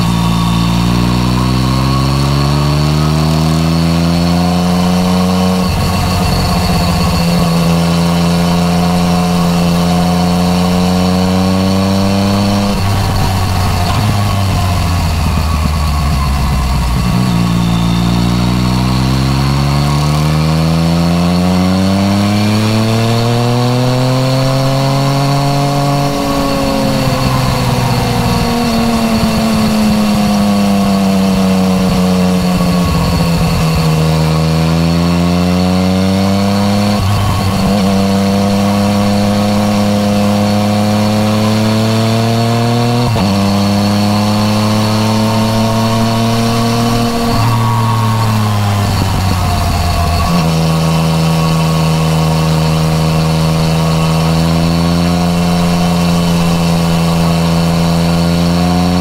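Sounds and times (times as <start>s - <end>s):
motorcycle engine while riding: 0.0s - 59.0s.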